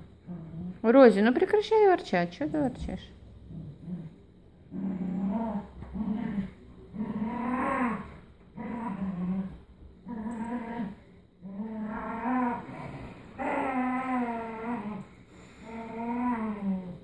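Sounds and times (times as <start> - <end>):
dog growling in play: 0.0 - 0.9, 2.5 - 17.0.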